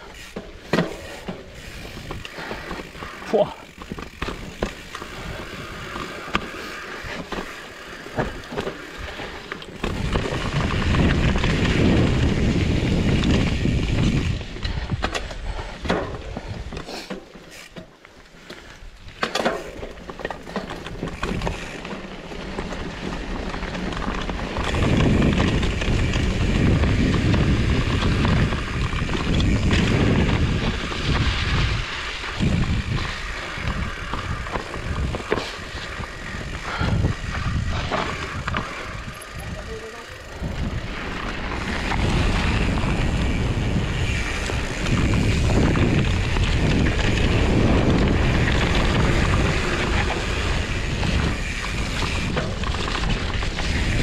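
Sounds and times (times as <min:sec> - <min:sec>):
bike tyre and trail noise: 0:00.0 - 0:54.0
clicks and knocks over ground: 0:19.2 - 0:21.8.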